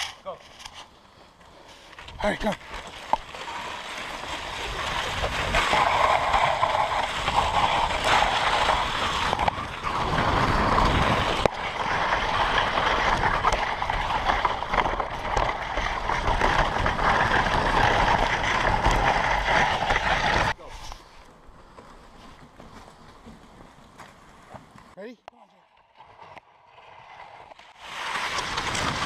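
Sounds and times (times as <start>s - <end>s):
sled runners scraping over snow: 0.0s - 25.0s, 25.8s - 29.0s.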